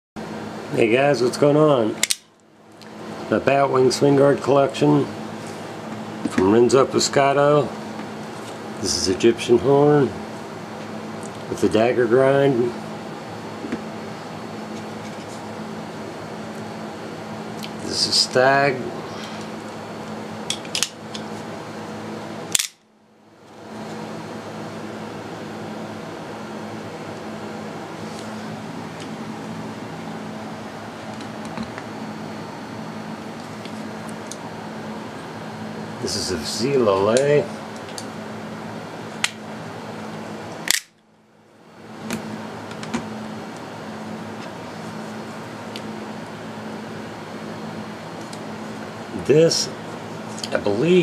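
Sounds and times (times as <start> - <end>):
steady background hum: 0.2 - 51.0
sharp click: 22.5 - 22.8, 40.7 - 41.0.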